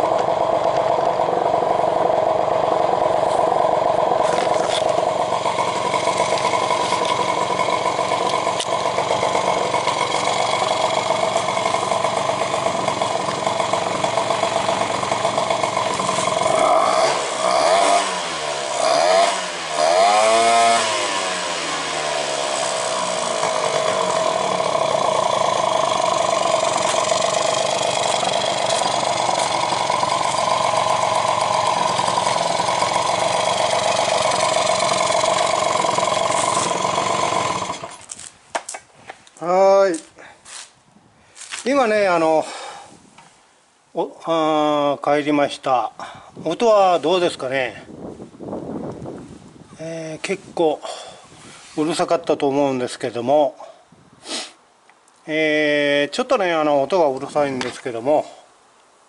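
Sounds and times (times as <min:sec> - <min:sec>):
loud air intake noise: 0:00.0 - 0:38.0
scooter engine running: 0:00.0 - 0:38.2.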